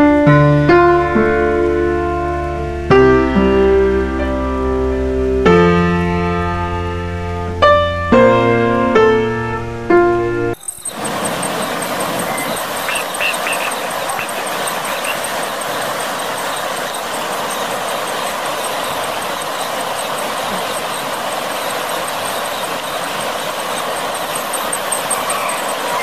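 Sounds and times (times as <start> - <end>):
faint high regular ticking: 10.6 - 25.9
floodwater rushing: 10.7 - 26.0.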